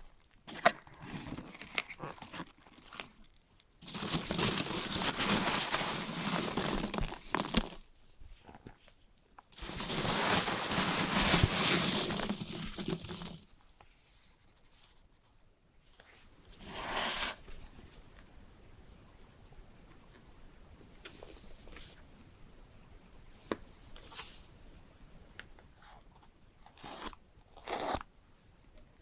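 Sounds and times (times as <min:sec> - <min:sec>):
packing peanuts rustling: 0:00.4 - 0:07.9, 0:09.5 - 0:13.6.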